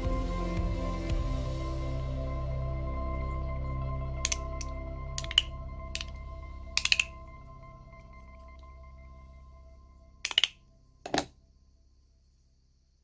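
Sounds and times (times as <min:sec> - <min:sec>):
magnetic slider clicking: 0:06.8 - 0:07.1, 0:10.3 - 0:11.2.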